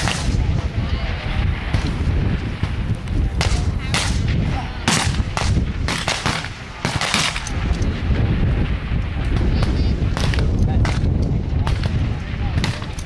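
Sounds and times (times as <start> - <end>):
rifle shots: 0.0 - 0.5, 3.4 - 7.8
steady low rumble: 0.0 - 13.0.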